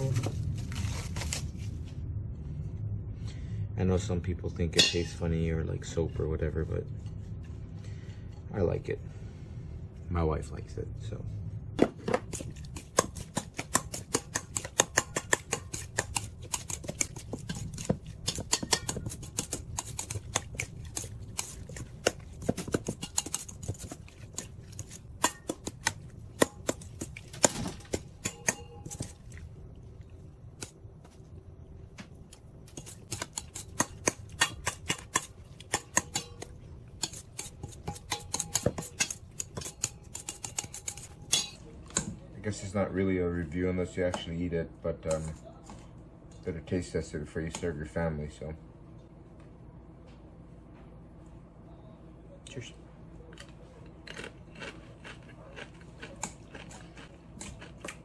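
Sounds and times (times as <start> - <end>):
metal spoon scraping steel bowl: 12.3 - 25.8, 32.7 - 41.6.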